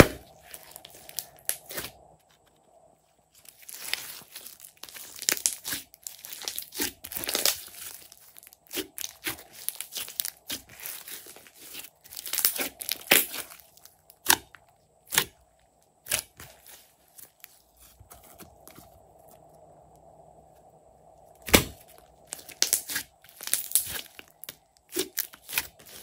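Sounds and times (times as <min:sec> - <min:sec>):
slime squelching by hand: 0:03.3 - 0:19.6, 0:21.4 - 0:26.0.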